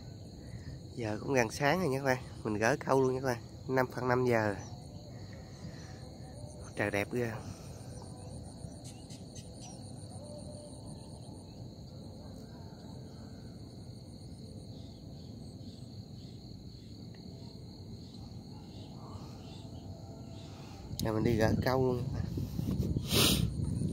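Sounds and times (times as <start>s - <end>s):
insects chirping: 0.0s - 23.9s
low steady background noise: 0.0s - 23.9s
fast high insect trill: 0.2s - 11.8s.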